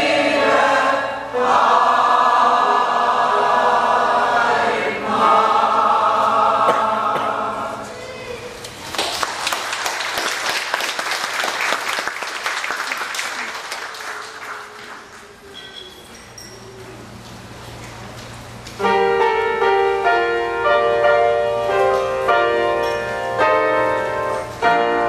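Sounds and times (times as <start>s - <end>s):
mixed choir singing: 0.0s - 8.0s
audience applause: 8.7s - 15.5s.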